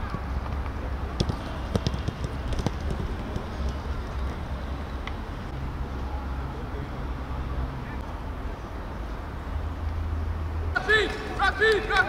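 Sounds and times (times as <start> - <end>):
football kick thuds: 1.2 - 3.9.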